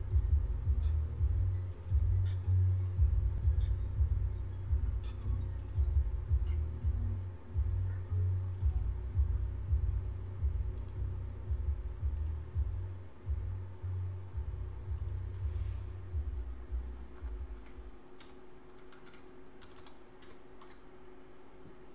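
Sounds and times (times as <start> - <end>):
low rumble: 0.0 - 17.9
faint steady hum: 0.0 - 21.9
computer keyboard keystrokes: 8.5 - 8.9, 17.2 - 20.9.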